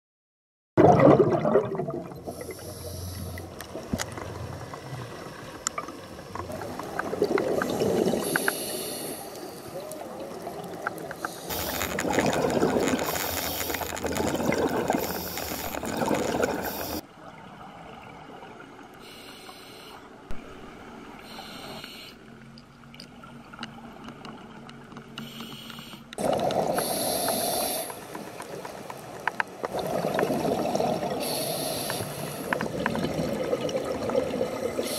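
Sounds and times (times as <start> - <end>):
bubbles rushing: 0.8 - 2.5, 6.3 - 8.4, 10.0 - 17.0, 26.2 - 27.0, 29.6 - 31.2, 32.5 - 34.9
diver breathing through regulator: 2.3 - 3.5, 7.6 - 9.8, 19.0 - 20.0, 21.2 - 22.2, 25.2 - 28.1, 31.2 - 32.6.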